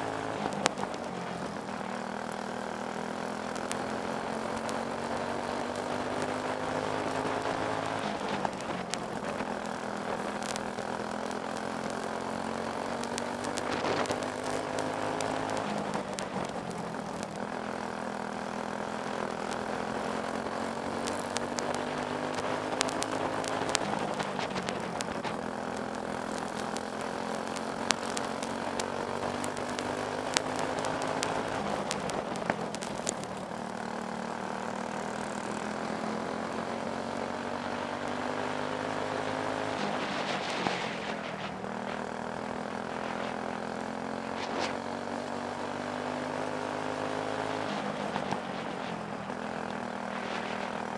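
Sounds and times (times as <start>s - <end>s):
kart engine at racing speed: 0.0s - 50.9s
sharp ticks: 0.1s - 34.2s.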